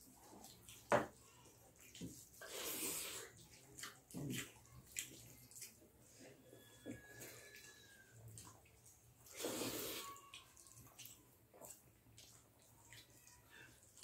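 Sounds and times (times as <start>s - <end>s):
wet chewing: 0.0s - 14.0s
wet slurp: 1.8s - 5.8s, 9.2s - 14.0s.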